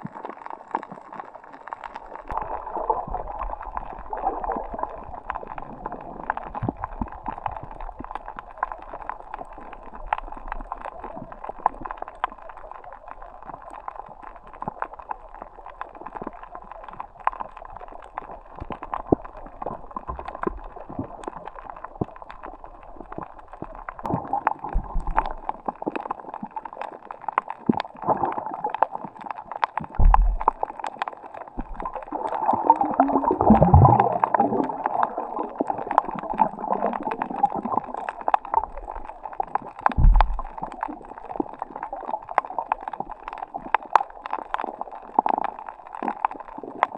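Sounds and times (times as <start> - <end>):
water gurgling and sloshing: 0.0 - 46.9
low thumps: 30.0 - 30.5, 40.0 - 40.6.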